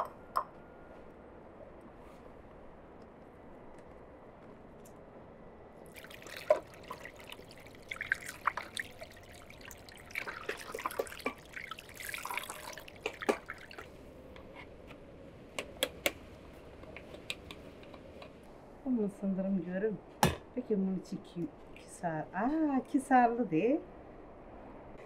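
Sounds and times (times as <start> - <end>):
tap water splashing over eggs: 5.9 - 14.0.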